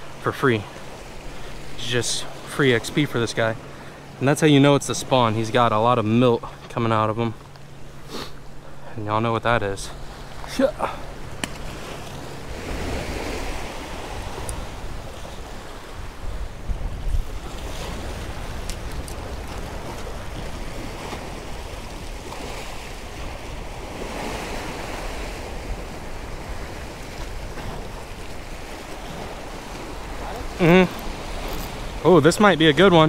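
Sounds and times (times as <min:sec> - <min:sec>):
surf washing against jetty: 0:00.0 - 0:33.0
wind rumble on microphone: 0:11.2 - 0:33.0.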